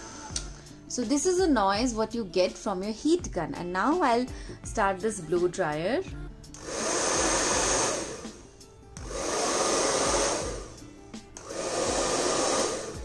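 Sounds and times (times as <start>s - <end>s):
hair dryer running: 0.0s - 0.9s, 6.6s - 13.0s.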